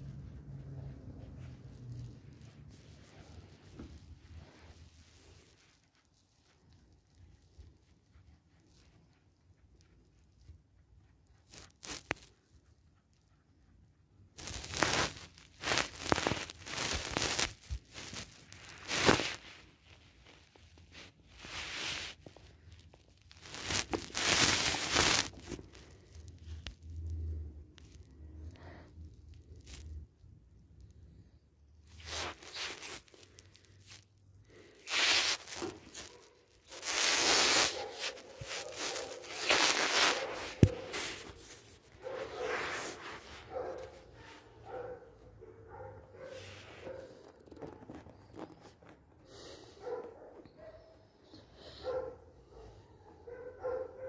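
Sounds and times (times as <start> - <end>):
cloth and rug rustling: 0.0 - 6.4, 14.4 - 22.8, 23.4 - 26.2, 31.9 - 49.2.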